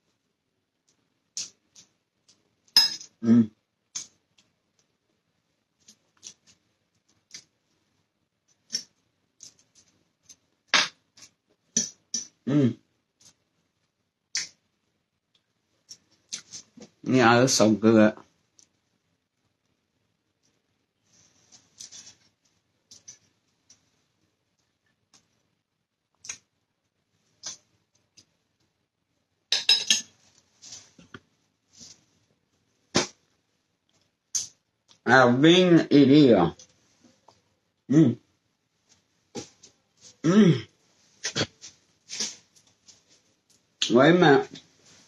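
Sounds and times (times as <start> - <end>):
metal fork clinking on a plate: 2.8 - 3.1, 29.5 - 30.1
person humming: 3.2 - 3.5, 12.5 - 12.8, 37.9 - 38.2, 40.2 - 40.6.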